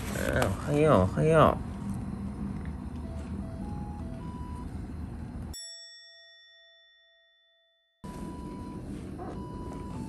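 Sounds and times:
bell-like ding: 5.6s - 8.0s.

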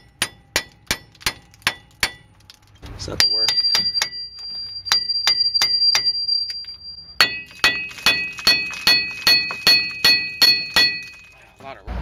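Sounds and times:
sledgehammer clanging on steel: 3.1s - 11.5s.

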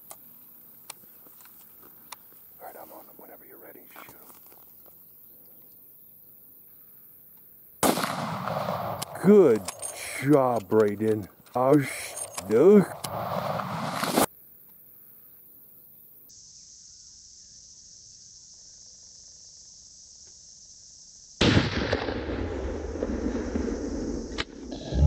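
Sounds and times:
rifle shot: 7.8s - 10.3s, 12.3s - 14.3s, 21.4s - 25.0s.

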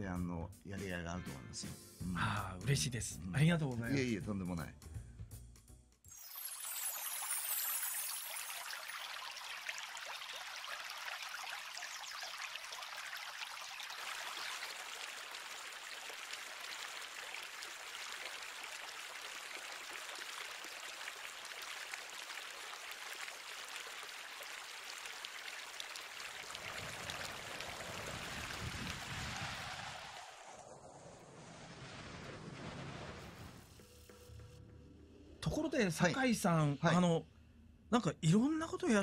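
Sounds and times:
stream flowing and splashing: 6.2s - 33.8s.

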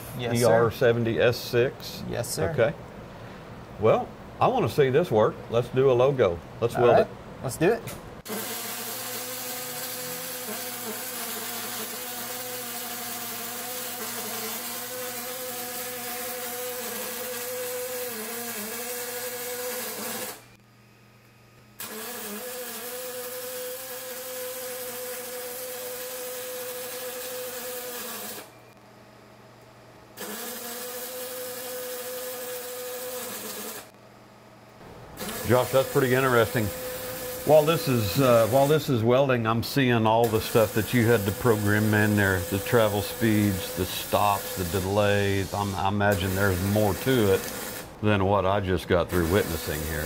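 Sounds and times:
welding arc buzzing and crackling: 8.2s - 28.6s, 30.2s - 34.0s, 34.8s - 50.0s.

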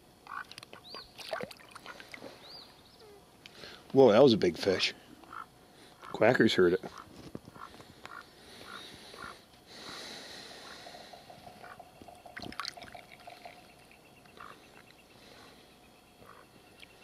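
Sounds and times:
duck dabbling water splashes: 0.3s - 2.3s, 10.6s - 13.7s.

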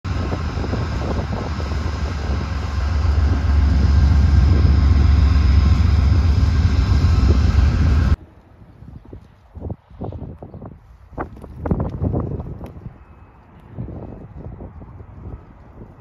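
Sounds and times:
high steady whine: 0.0s - 8.2s
diesel locomotive engine rumble: 0.0s - 8.6s.

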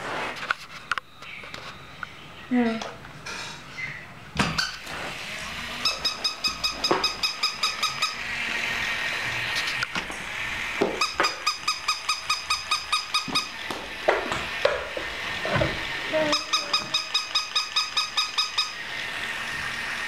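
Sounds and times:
electronic toy beeping: 5.8s - 8.3s, 11.0s - 13.6s, 16.1s - 18.9s.

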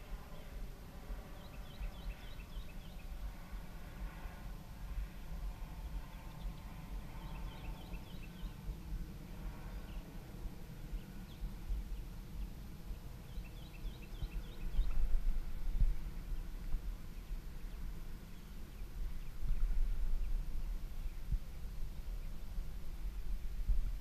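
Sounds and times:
wind buffeting the microphone: 0.0s - 24.0s
bird chirping: 1.2s - 3.7s, 5.8s - 8.7s, 9.6s - 10.1s, 10.9s - 22.4s.

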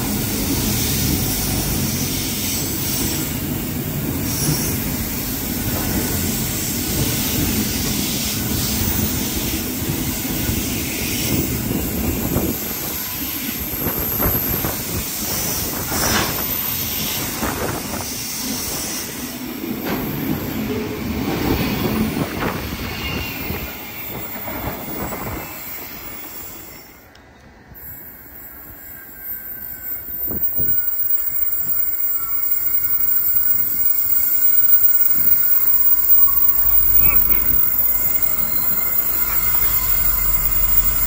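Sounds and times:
train wheels rumbling on track: 0.0s - 41.0s
high wheel squeals: 27.8s - 41.0s.

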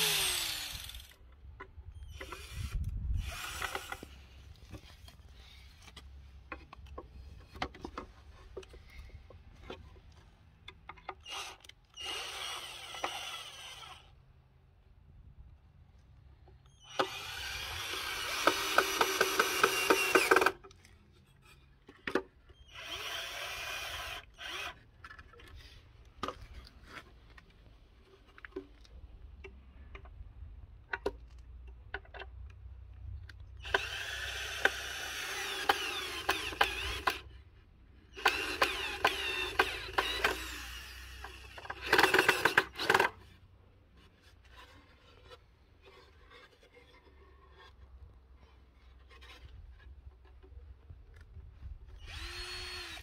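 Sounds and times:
cordless drill boring into wood: 0.0s - 1.2s, 2.0s - 4.2s, 11.2s - 14.2s, 16.8s - 20.6s, 22.6s - 24.9s, 33.6s - 37.4s, 38.1s - 43.2s, 51.9s - 53.0s.

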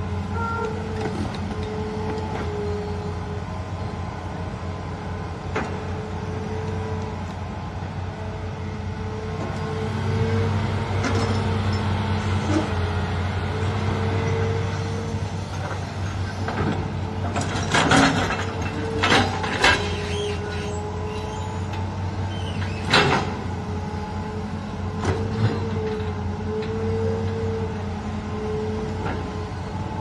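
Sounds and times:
excavator diesel engine running: 0.0s - 30.0s.

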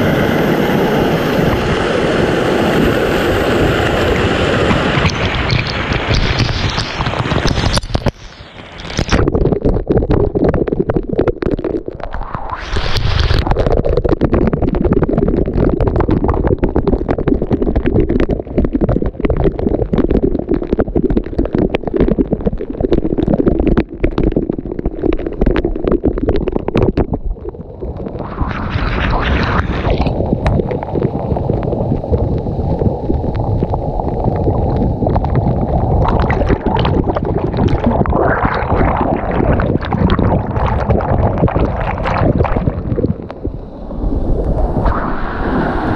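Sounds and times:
water rushing and gurgling: 0.0s - 45.9s.

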